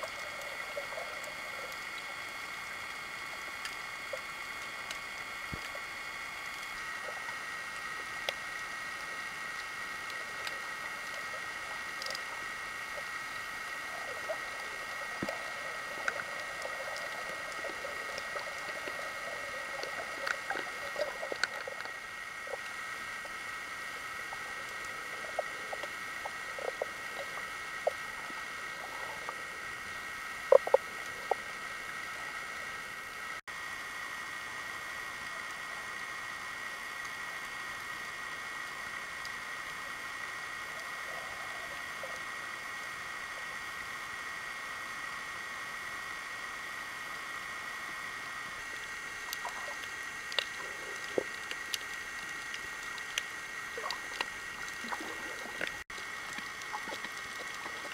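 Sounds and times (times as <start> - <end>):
small underwater clicks and pops: 0.0 - 32.6, 47.8 - 57.9
underwater hiss: 0.0 - 57.9.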